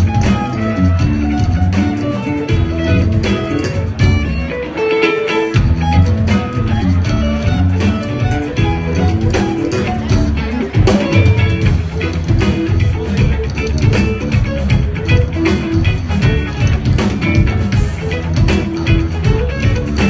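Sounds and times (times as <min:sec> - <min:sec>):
live rock band playing: 0:00.0 - 0:20.0.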